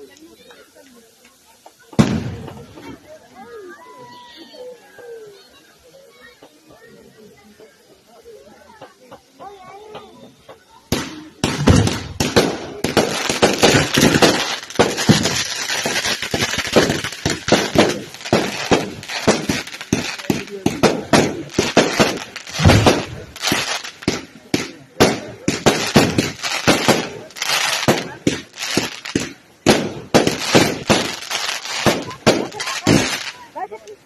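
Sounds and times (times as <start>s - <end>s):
firecrackers banging and crackling: 0.0s - 3.5s, 7.4s - 34.0s
hissing spray of sparks: 6.1s - 34.0s
aerial shells bursting: 11.0s - 24.3s.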